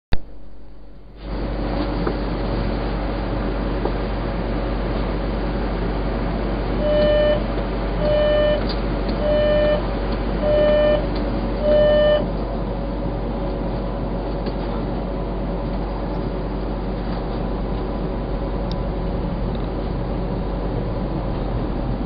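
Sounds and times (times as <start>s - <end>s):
train humming: 0.2s - 22.0s
door-closing warning beeps: 6.8s - 9.8s, 10.4s - 12.3s.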